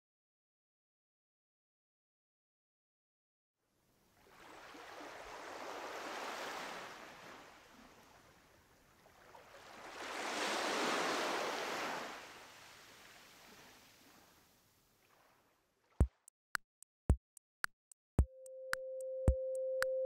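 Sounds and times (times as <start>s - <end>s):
surf-like rushing noise: 9.7s - 13.0s.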